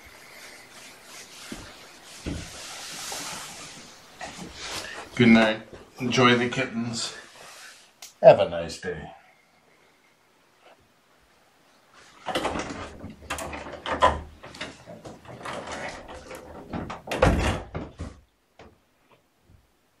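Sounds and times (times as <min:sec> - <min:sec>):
close rustling: 0:00.0 - 0:08.0
door opening and shutting: 0:12.1 - 0:18.8.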